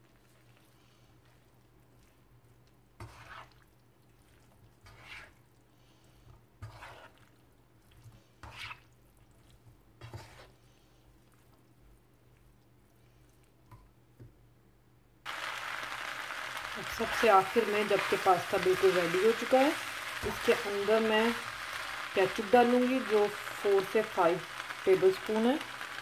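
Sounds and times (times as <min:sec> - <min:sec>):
plastic spoon scraping pan: 0:10.0 - 0:10.6.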